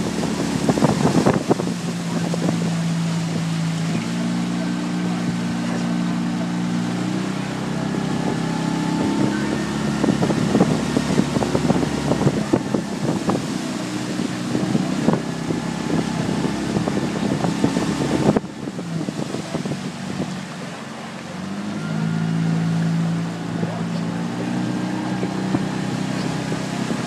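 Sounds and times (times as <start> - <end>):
wind buffeting microphone: 0.0 - 21.6, 22.2 - 27.0
outboard motor running: 0.0 - 27.0.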